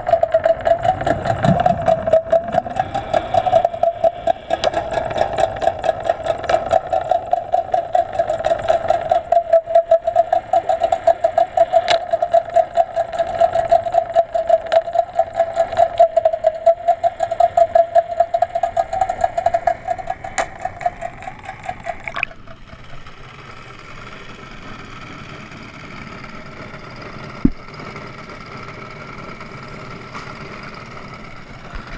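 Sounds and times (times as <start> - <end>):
boat engine underwater: 0.0 - 31.9
engine hum: 0.0 - 31.9.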